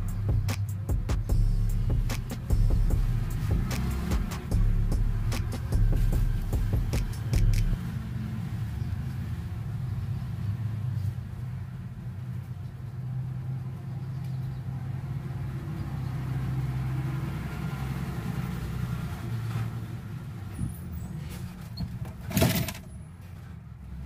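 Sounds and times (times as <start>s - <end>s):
low background rumble and hum: 0.0s - 7.8s.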